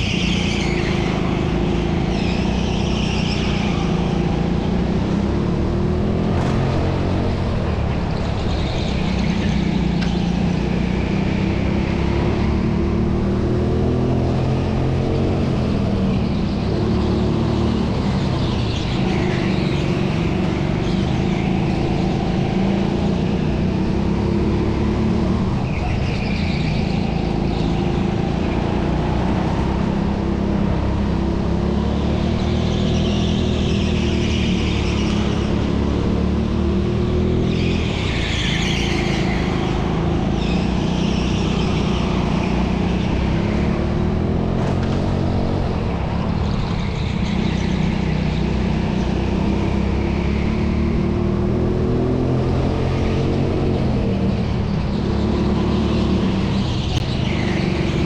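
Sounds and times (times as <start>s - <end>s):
go-kart engine revving: 0.0s - 58.0s.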